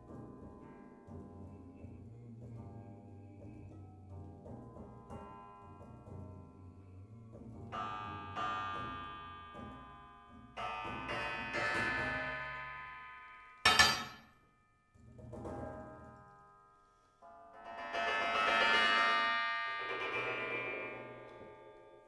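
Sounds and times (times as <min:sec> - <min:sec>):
coil springs ringing when struck: 0:07.8 - 0:16.7.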